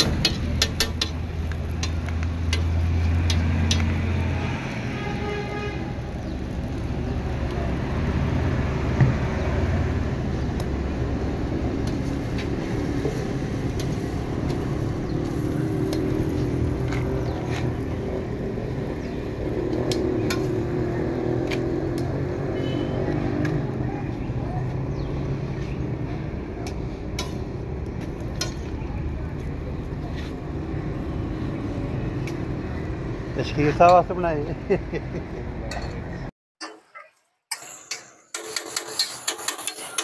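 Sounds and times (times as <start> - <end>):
metal spatula clicking on griddle: 0.0 - 3.9, 37.5 - 40.0
roadside traffic noise: 0.0 - 36.4, 37.9 - 40.0.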